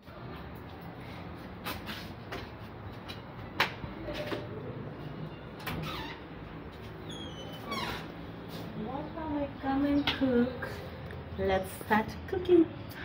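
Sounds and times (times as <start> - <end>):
door squeak: 5.6 - 6.4, 7.0 - 8.2.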